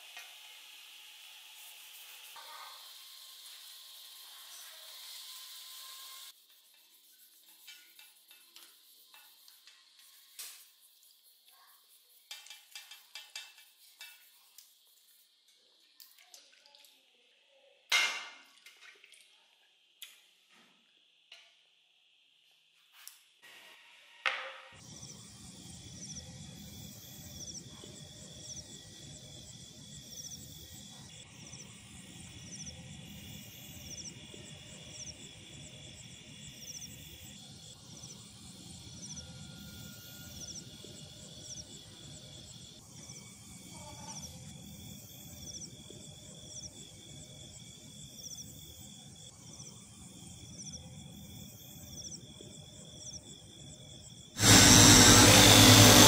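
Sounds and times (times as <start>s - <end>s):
crickets chirping: 24.8s - 54.4s
buffing wheel running: 54.4s - 56.0s.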